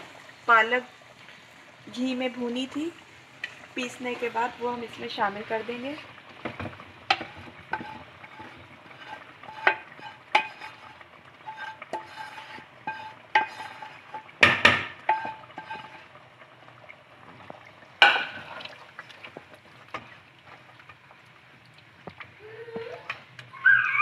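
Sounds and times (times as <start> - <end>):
stirring in a metal pot: 3.4 - 16.4
plastic spatula scraping a pan: 6.5 - 16.2.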